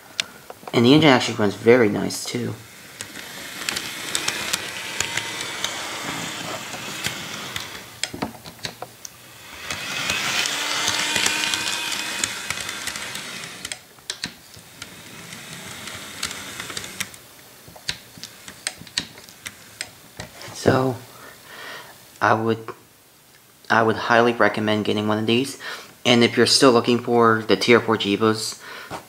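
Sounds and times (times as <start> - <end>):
model train motor whirring: 2.3 - 8.2, 9.0 - 13.9, 14.5 - 17.2
wheels clicking over track: 2.8 - 13.8, 14.6 - 17.2.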